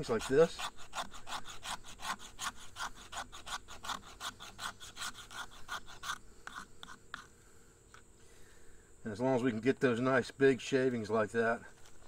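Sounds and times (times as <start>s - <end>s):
knife scraping wood shavings: 0.0s - 7.3s.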